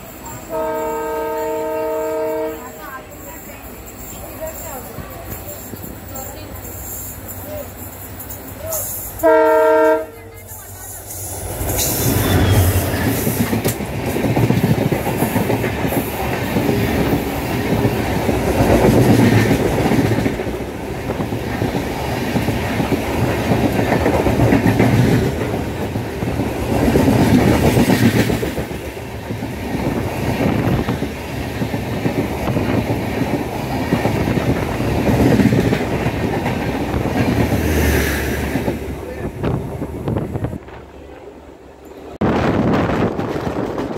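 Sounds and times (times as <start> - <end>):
train passing with wheel clatter: 0.0 - 43.9
locomotive horn blast: 0.5 - 2.8, 9.2 - 10.3.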